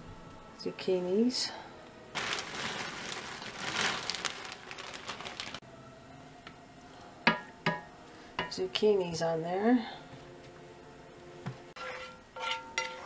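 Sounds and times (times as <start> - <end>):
plastic packaging crinkling: 2.1 - 5.6.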